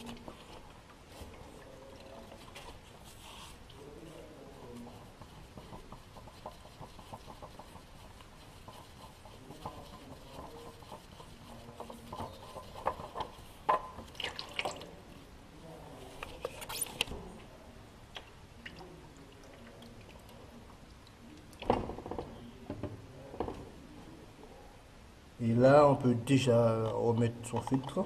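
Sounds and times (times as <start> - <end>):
hand twisting oil filter: 4.7 - 14.7.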